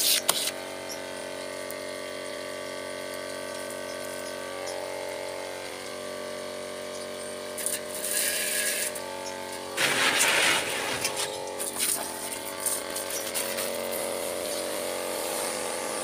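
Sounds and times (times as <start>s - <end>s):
water pump humming: 0.0s - 16.0s
water jet hissing: 7.5s - 9.0s.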